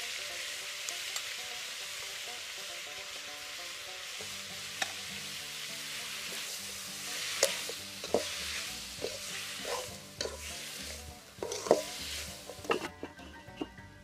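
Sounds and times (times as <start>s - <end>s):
chicken sizzling in a pan: 0.0s - 13.7s
metal spoon scraping a pan: 4.2s - 13.8s.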